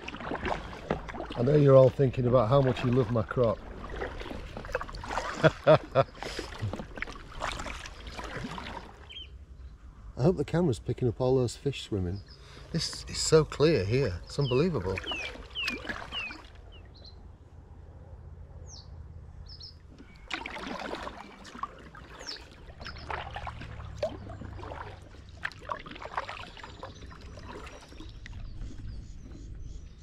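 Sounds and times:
kayak paddle splashing water: 0:00.0 - 0:09.3, 0:12.3 - 0:16.8, 0:19.9 - 0:30.0
falling bird chirps: 0:14.3 - 0:17.2.

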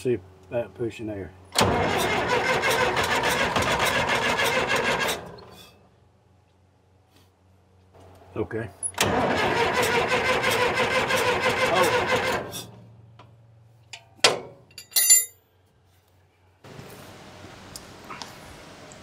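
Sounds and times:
diesel engine cranking on starter: 0:01.5 - 0:05.7, 0:09.0 - 0:12.9
sharp metal clanks: 0:14.0 - 0:15.4.

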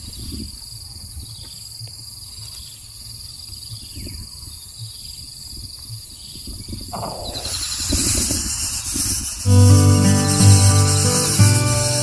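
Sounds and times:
insects droning: 0:00.0 - 0:12.0
low rumble: 0:07.0 - 0:08.1.

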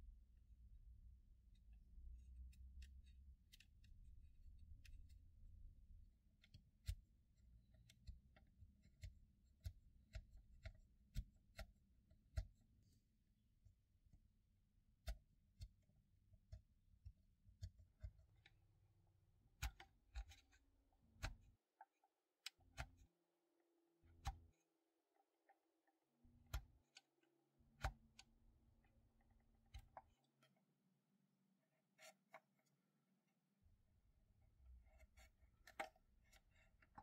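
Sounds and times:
chisel scraping plastic: 0:19.5 - 0:23.1, 0:24.1 - 0:30.7, 0:31.8 - 0:32.8, 0:34.7 - 0:37.0.

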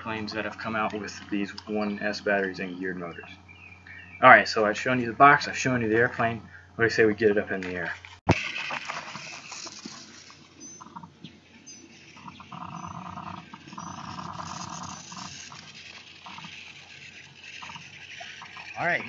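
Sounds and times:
buzzy animal call: 0:10.6 - 0:19.0.

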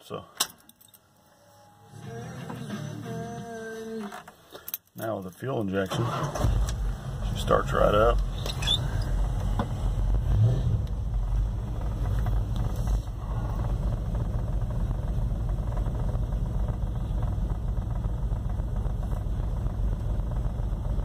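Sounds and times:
engine idling: 0:06.0 - 0:21.0.

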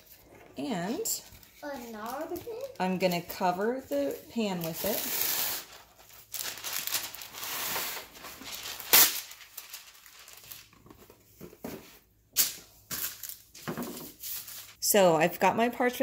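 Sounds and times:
wax paper crinkling and rustling: 0:00.8 - 0:11.8
wax paper tearing: 0:04.6 - 0:10.7.

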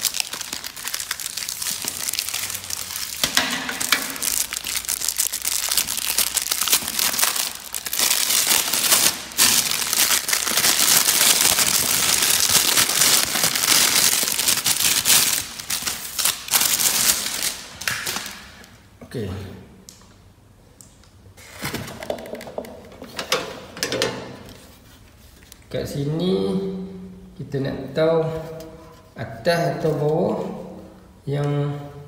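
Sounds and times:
plastic wrapping crinkling: 0:00.0 - 0:18.8.

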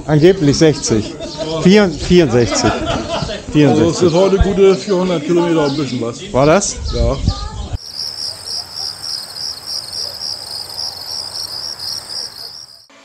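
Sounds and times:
crickets chirping: 0:07.8 - 0:12.9.

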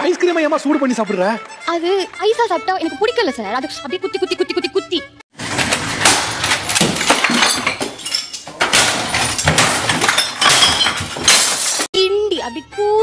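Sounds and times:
things crashing and breaking: 0:05.3 - 0:11.9.

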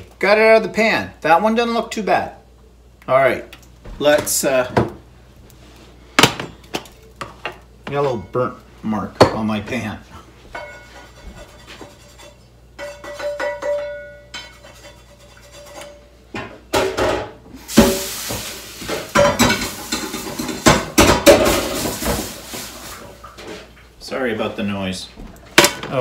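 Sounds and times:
metal pots and pans clattering: 0:10.5 - 0:23.8.

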